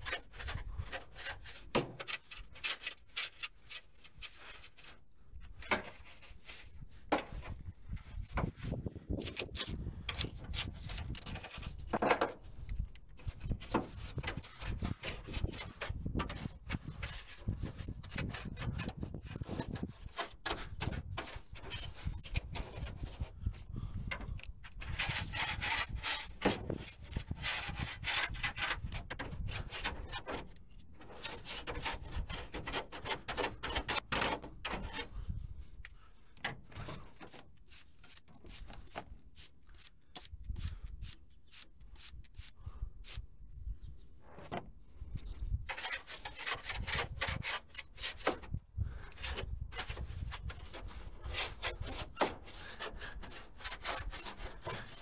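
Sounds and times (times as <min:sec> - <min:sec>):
brush scrubbing vehicle surface: 0:00.0 - 0:05.0, 0:49.2 - 0:55.0.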